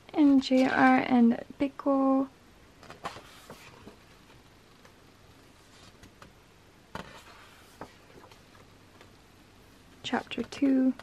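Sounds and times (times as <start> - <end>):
book pages turning: 2.8 - 4.0, 7.0 - 9.1.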